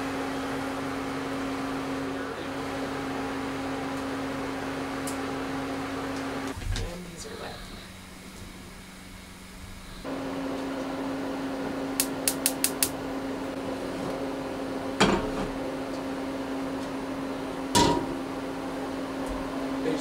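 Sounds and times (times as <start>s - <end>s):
steady hum: 0.0s - 20.0s
gas igniter clicking: 11.9s - 13.0s.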